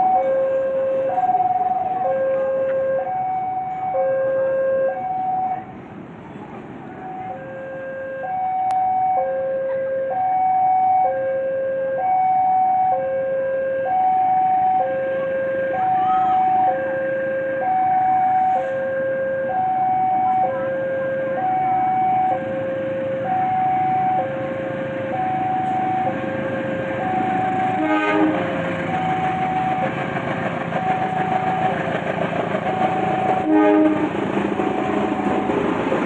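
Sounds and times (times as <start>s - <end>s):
level crossing two-tone alarm: 0.0s - 5.6s, 7.0s - 28.0s.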